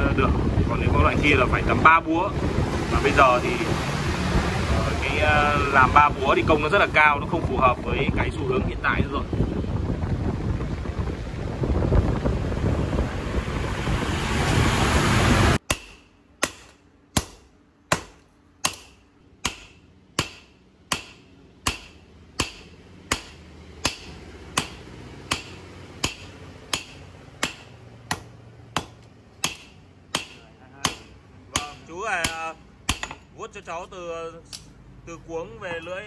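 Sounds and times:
loud rushing noise: 0:00.0 - 0:07.3, 0:08.1 - 0:15.6
hammer striking hot metal on anvil: 0:15.7 - 0:33.2.

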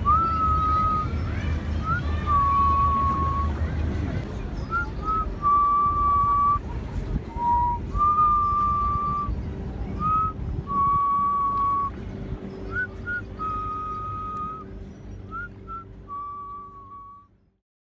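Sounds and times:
person whistling a slow tune: 0:00.0 - 0:01.1, 0:04.7 - 0:06.8, 0:07.4 - 0:09.3, 0:10.0 - 0:11.9, 0:12.7 - 0:14.7, 0:15.3 - 0:17.3
low steady hum: 0:00.0 - 0:17.6.

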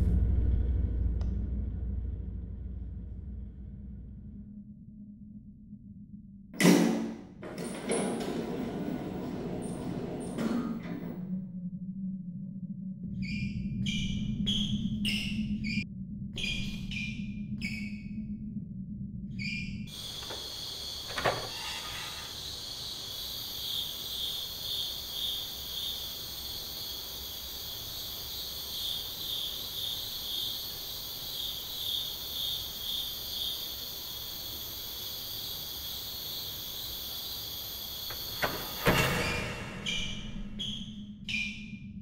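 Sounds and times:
crickets chirping: 0:13.0 - 0:15.8, 0:16.4 - 0:18.1, 0:19.4 - 0:41.8.

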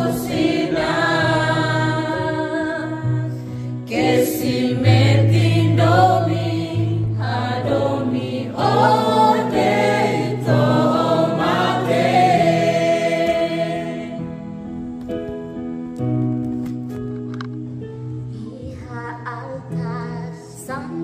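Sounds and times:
choir singing: 0:00.0 - 0:14.4.

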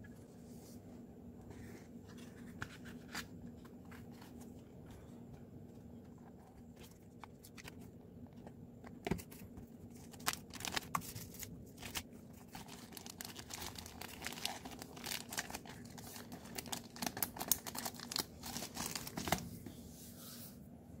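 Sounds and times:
plastic bag crinkling: 0:09.9 - 0:19.4.

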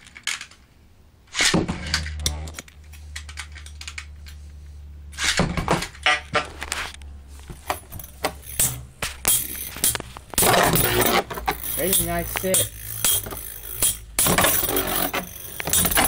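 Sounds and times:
spinning top launcher rip: 0:01.3 - 0:02.0, 0:05.2 - 0:05.6
metal tops clacking together: 0:07.6 - 0:16.0
spinning tops humming: 0:07.7 - 0:16.0.

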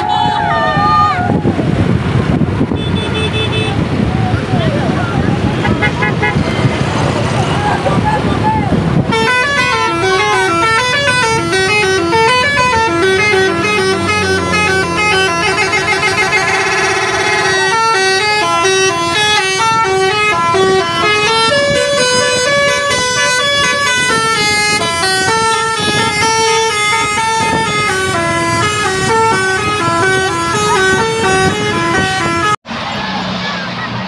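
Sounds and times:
musical air horn playing a tune: 0:09.1 - 0:32.6.

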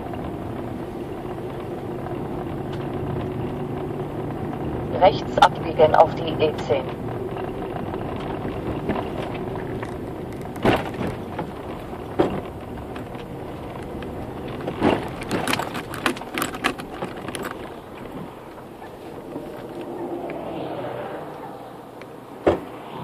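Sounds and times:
car road and engine noise: 0:00.0 - 0:23.0
sharp knocks and clicks: 0:07.0 - 0:20.4.

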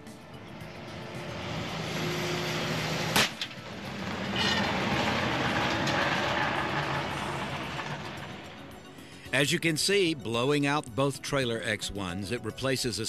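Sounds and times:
flat tires rushing on road: 0:00.0 - 0:09.1
truck engine passing: 0:00.0 - 0:09.8
loud sharp bang: 0:03.0 - 0:05.8.

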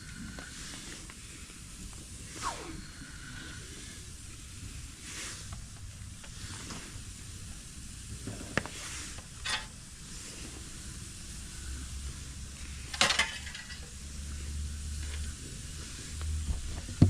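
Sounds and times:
burger patties sizzling on grill: 0:00.0 - 0:17.0
brief scrape: 0:02.4 - 0:02.9.

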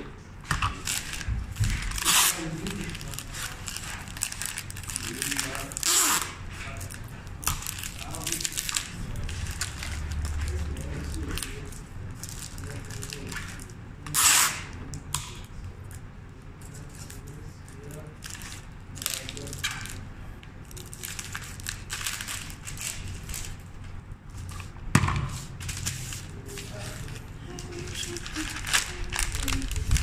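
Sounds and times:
tape ripping from dispenser: 0:00.5 - 0:11.7, 0:12.6 - 0:15.5, 0:25.3 - 0:30.0
wrapping paper rustling and crinkling: 0:00.7 - 0:13.8, 0:16.6 - 0:30.0.

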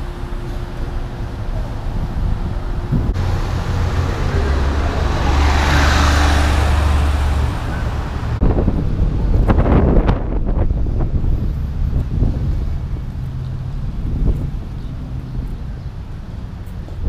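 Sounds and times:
wind buffeting microphone: 0:00.0 - 0:17.0
car driving past: 0:03.0 - 0:08.5.

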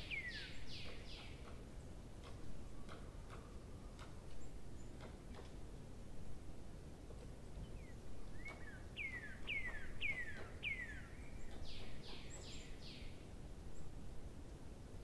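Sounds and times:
bird singing whistled notes: 0:00.0 - 0:01.4, 0:07.6 - 0:13.2.

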